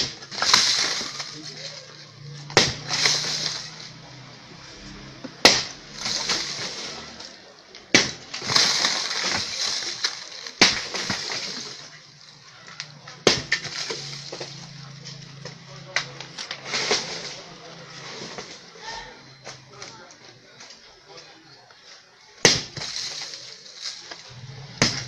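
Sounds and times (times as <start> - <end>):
rubble clattering down: 0.0 - 4.0, 5.5 - 18.6, 22.5 - 25.0
sledgehammer striking concrete blocks: 0.0 - 4.0, 5.0 - 12.1, 12.9 - 17.5, 22.4 - 25.0.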